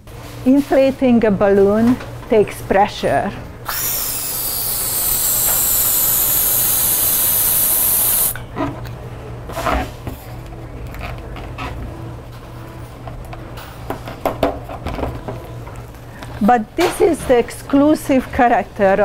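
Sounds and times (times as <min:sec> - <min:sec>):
helium hissing into balloon: 0:03.8 - 0:08.4.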